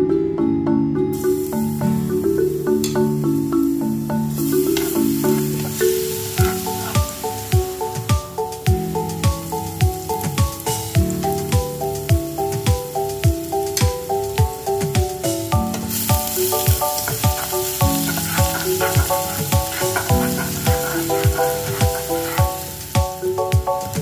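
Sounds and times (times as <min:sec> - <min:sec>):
background music with steady beat: 0:00.0 - 0:24.0
garlic and onion sizzling in oil: 0:01.2 - 0:24.0.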